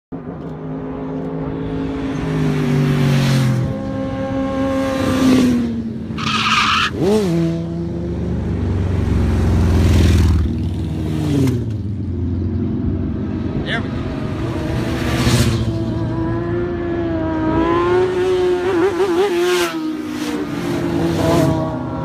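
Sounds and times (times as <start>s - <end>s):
motorcycle engines revving: 0.2s - 22.0s.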